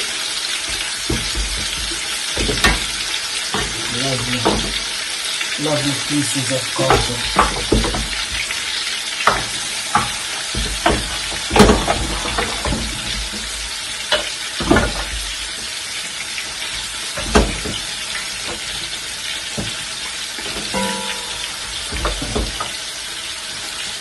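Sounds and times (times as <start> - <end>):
meat sizzling in hot oil: 0.0 - 24.0
wooden spoon knocking pot: 0.7 - 5.0, 6.8 - 8.6, 9.2 - 13.5, 20.4 - 22.8.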